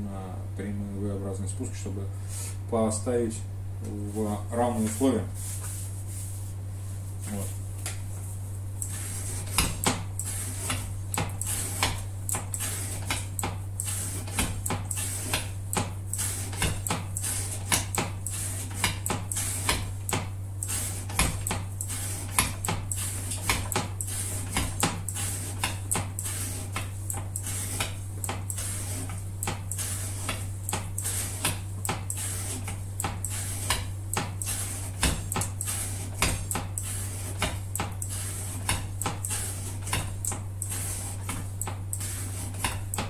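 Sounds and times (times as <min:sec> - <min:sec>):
steady low hum: 0:00.0 - 0:43.0
knife blade chopping: 0:09.4 - 0:10.0, 0:10.6 - 0:40.7.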